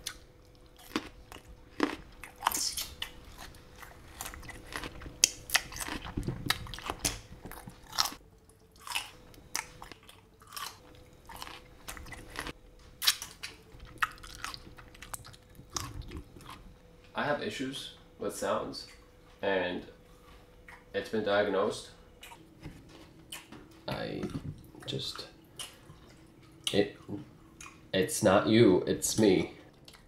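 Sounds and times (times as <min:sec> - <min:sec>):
person chewing loudly: 0:00.0 - 0:16.7, 0:22.2 - 0:22.4, 0:23.3 - 0:23.5, 0:24.2 - 0:27.9.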